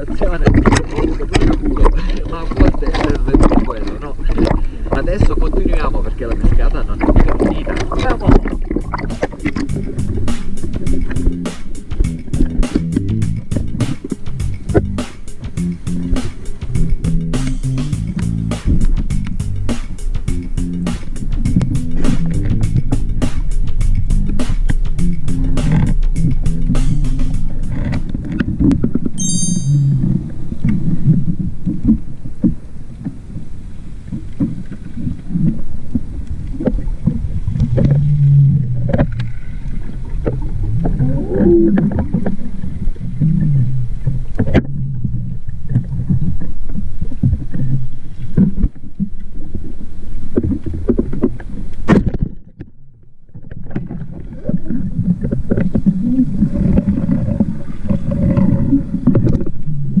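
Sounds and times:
muffled underwater water rush: 0.0s - 29.2s, 29.9s - 60.0s
sharp snap: 9.1s - 16.8s, 17.4s - 20.3s, 25.6s - 26.1s.

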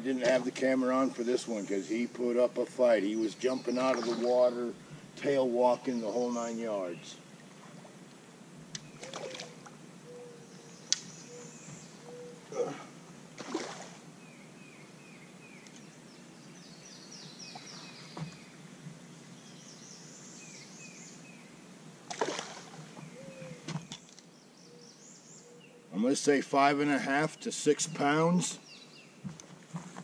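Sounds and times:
birds chirping: 0.0s - 13.3s, 13.9s - 30.0s
fish splashing in water: 9.0s - 9.6s, 13.3s - 14.0s, 22.1s - 22.9s.

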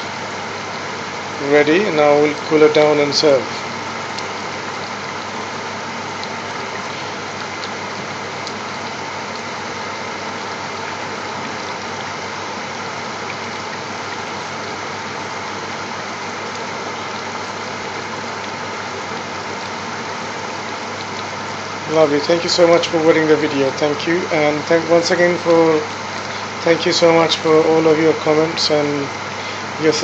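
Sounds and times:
mechanical hum with hiss: 0.0s - 30.0s
simmering curry popping: 3.4s - 22.0s.

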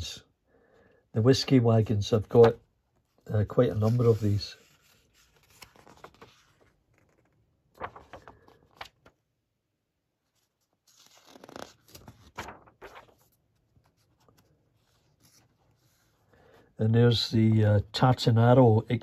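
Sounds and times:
book pages rustling: 2.1s - 9.2s, 10.2s - 16.3s.

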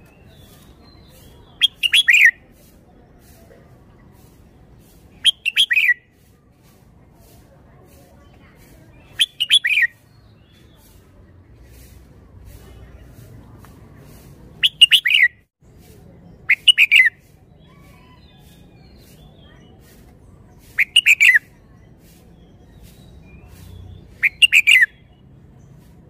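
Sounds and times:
bird singing short phrases: 0.0s - 2.4s, 4.2s - 6.2s, 8.9s - 11.0s, 14.6s - 15.4s, 16.4s - 20.0s, 20.6s - 25.8s.

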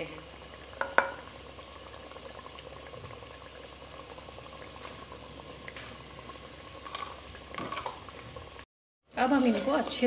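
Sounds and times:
food sizzling in hot oil: 0.0s - 10.0s.

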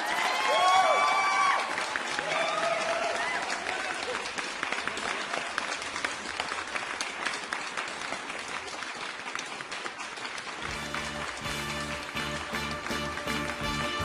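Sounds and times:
hands clapping: 0.0s - 14.0s
music: 10.6s - 14.0s.

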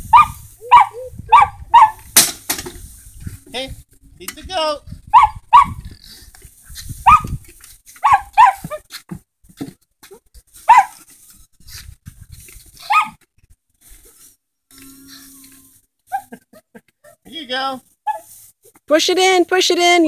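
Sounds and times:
dog barking in sharp yaps: 0.1s - 2.0s, 5.1s - 5.8s, 7.0s - 7.3s, 8.0s - 8.8s, 10.6s - 11.0s, 12.8s - 13.2s, 18.1s - 18.3s.

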